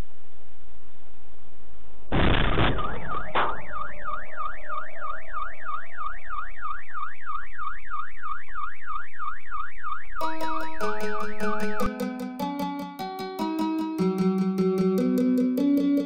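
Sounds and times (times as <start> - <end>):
car alarm wailing: 3.0 - 11.8.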